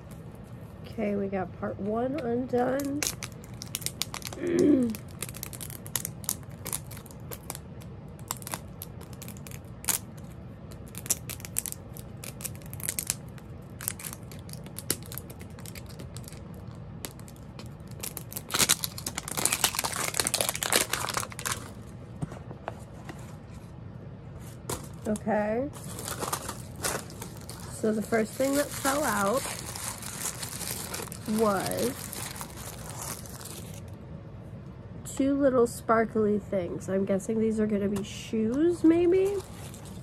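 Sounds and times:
plastic wrapper crinkling and tearing: 0:02.8 - 0:21.9, 0:24.7 - 0:34.0, 0:39.1 - 0:40.0.

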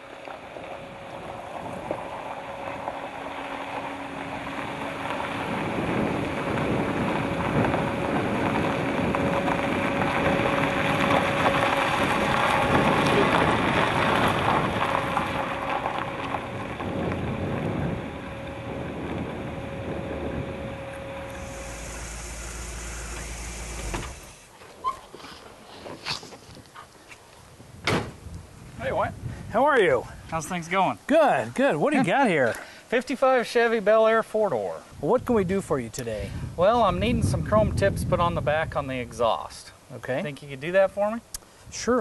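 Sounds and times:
car engine running: 0:00.0 - 0:24.5
tyres crunching on gravel: 0:00.0 - 0:26.7.

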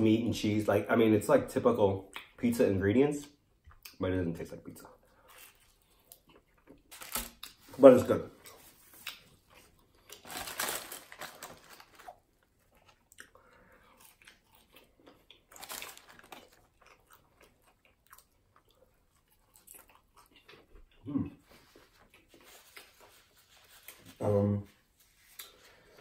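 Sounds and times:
person chewing food: 0:05.1 - 0:07.6, 0:08.4 - 0:10.3, 0:11.9 - 0:23.3.

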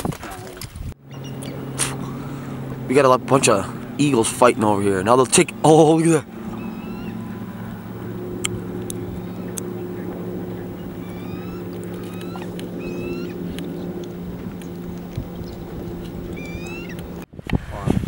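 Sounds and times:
eagles chirping calls: 0:01.0 - 0:17.2
outboard motor idling: 0:01.0 - 0:17.3
sharp clicks: 0:08.4 - 0:09.7, 0:11.7 - 0:12.8.

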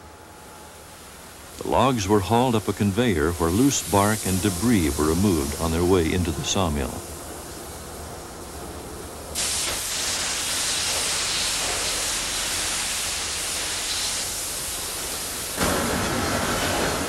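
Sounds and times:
water jets spraying log: 0:01.6 - 0:07.0, 0:09.4 - 0:17.0.

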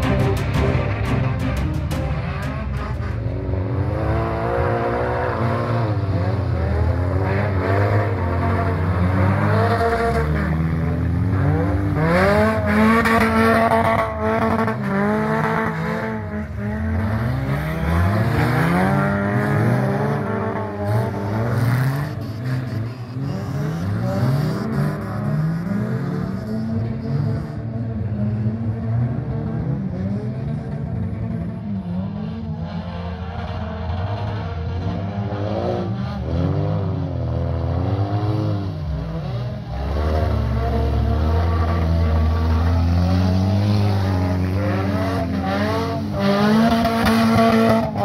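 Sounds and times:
car engines revving: 0:00.0 - 0:48.0.

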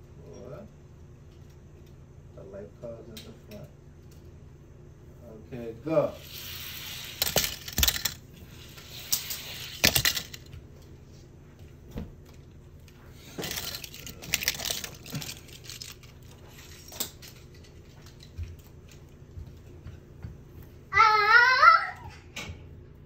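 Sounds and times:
toy cars clattering down plastic track: 0:06.2 - 0:10.5, 0:13.2 - 0:18.2.

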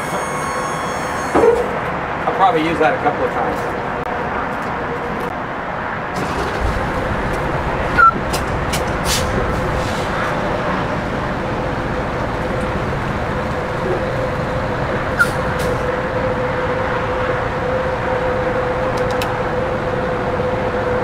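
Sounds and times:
truck engine running: 0:06.1 - 0:21.0.

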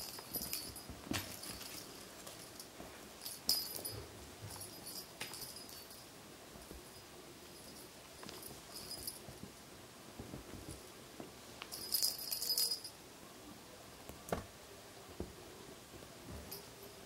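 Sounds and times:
small bell jingling: 0:00.0 - 0:09.4, 0:11.7 - 0:13.0
kitten scuffling on fabric: 0:10.2 - 0:11.8.

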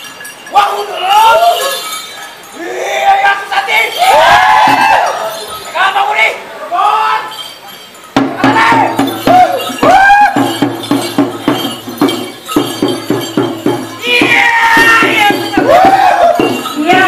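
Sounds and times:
dancers shouting: 0:03.9 - 0:05.3, 0:08.4 - 0:10.6, 0:14.0 - 0:17.0
hand drum beaten with stick: 0:08.2 - 0:17.0.

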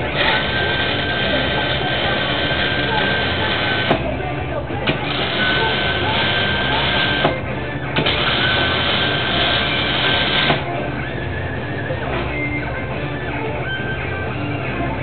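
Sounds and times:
arc welder crackling: 0:00.0 - 0:10.8.

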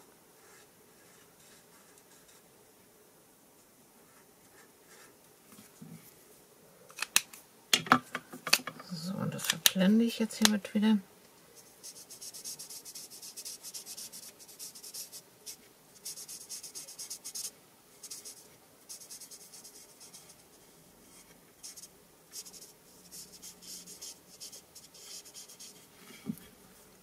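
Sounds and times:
marker scratching on cardstock: 0:11.8 - 0:20.4, 0:21.6 - 0:25.8.

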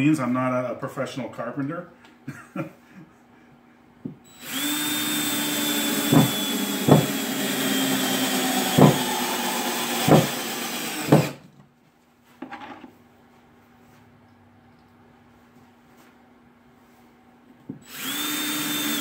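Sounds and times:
drill motor whining: 0:04.3 - 0:11.4, 0:17.8 - 0:19.0
sharp knocks: 0:06.0 - 0:07.2, 0:08.6 - 0:09.1, 0:10.0 - 0:11.4.

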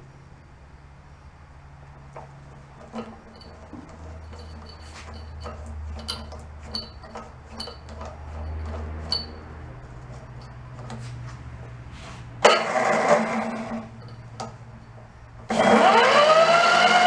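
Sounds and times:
small metallic clicks and clinks: 0:02.1 - 0:11.1, 0:13.9 - 0:15.1
electric starter motor whirring: 0:15.5 - 0:17.0.

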